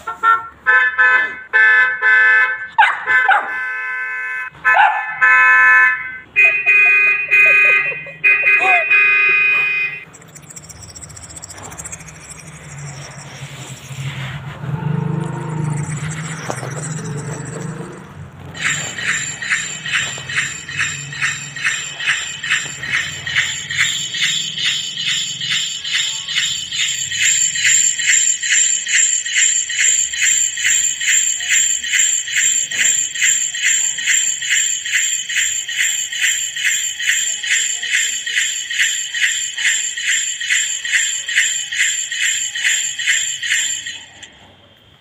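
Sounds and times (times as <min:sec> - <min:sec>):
jingle bells shaken: 0:06.7 - 0:09.1, 0:10.0 - 0:14.4, 0:15.2 - 0:44.3.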